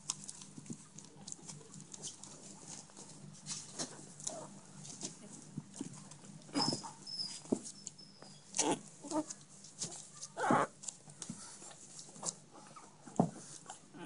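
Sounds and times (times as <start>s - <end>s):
paws scrabbling on bedding: 0.0s - 13.9s
puppies yipping: 6.5s - 9.3s, 10.2s - 10.7s.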